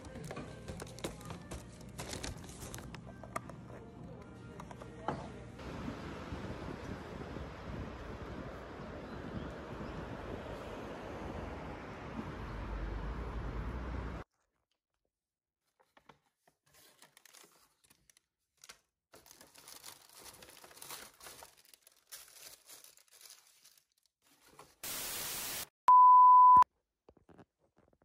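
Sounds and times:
paper bag crinkling: 0:00.0 - 0:03.0, 0:16.7 - 0:24.9
tv static burst: 0:24.9 - 0:25.7
test-tone beep: 0:25.9 - 0:26.6.

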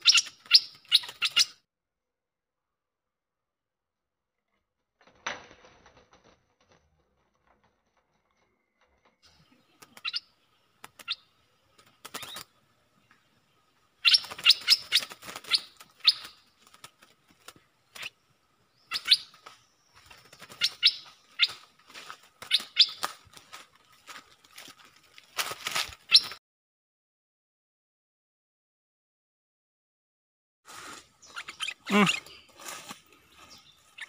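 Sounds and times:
bulbuls chirping: 0:00.0 - 0:01.6, 0:09.3 - 0:24.2, 0:25.8 - 0:26.4, 0:31.1 - 0:34.0.

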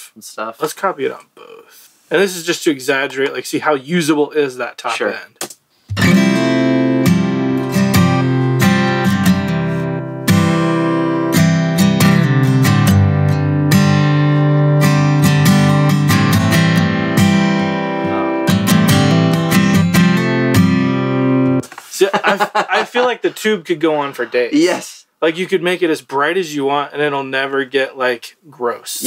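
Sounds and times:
acoustic guitar strumming chords: 0:05.9 - 0:21.6.

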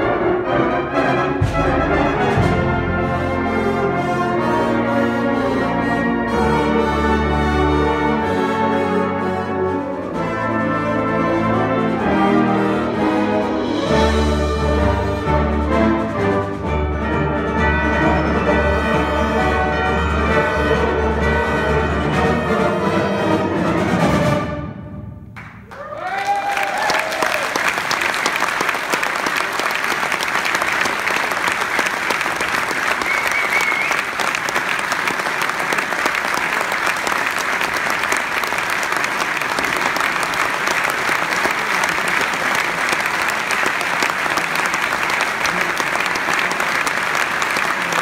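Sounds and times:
audience applause: 0:25.4 - 0:48.0.

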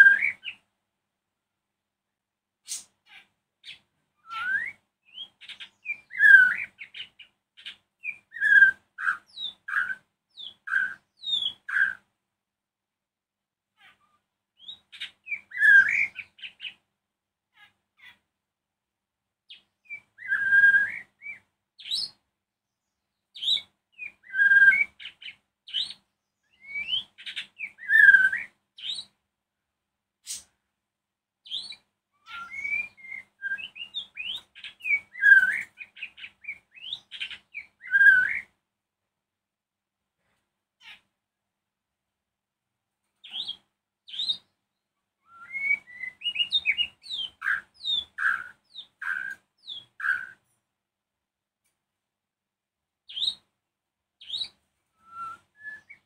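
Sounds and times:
bird song whistles and chirps: 0:00.0 - 0:00.6, 0:02.7 - 0:12.0, 0:14.6 - 0:16.8, 0:19.5 - 0:22.2, 0:22.8 - 0:29.2, 0:31.4 - 0:38.6, 0:43.2 - 0:50.5, 0:53.1 - 0:53.5, 0:54.2 - 0:56.0.

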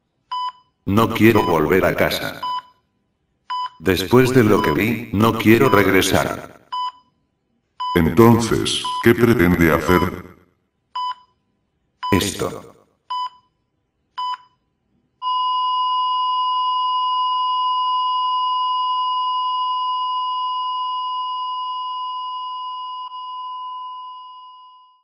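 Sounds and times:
heart monitor beeps: 0:00.3 - 0:06.1, 0:06.7 - 0:09.2, 0:10.9 - 0:25.0.

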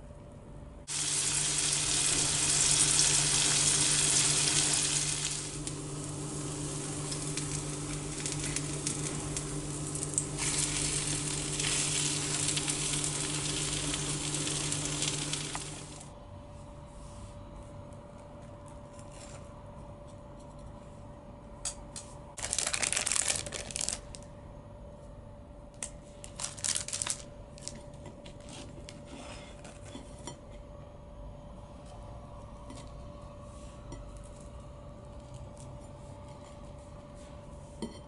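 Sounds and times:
faint steady hum: 0:00.0 - 0:38.0
plastic wrapping rustling: 0:04.5 - 0:16.1, 0:22.4 - 0:24.2, 0:26.2 - 0:27.8.

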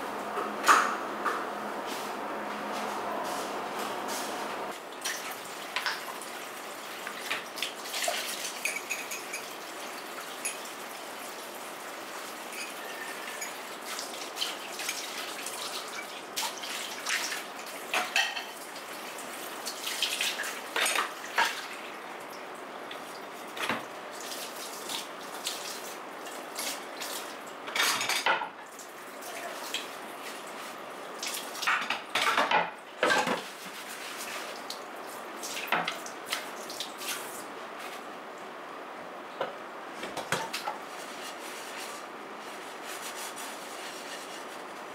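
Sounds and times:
dishes clinking and knocking: 0:08.6 - 0:09.5.

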